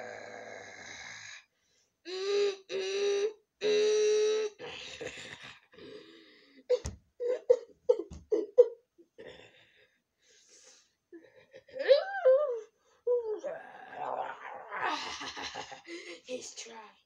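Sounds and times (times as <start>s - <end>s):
dull thumps: 6.8s - 7.1s, 7.9s - 8.4s
boy crying: 11.7s - 13.5s.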